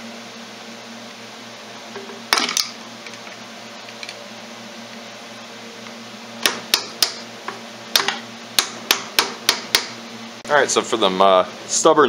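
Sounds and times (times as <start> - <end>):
hammer striking impact driver: 8.0 - 10.0.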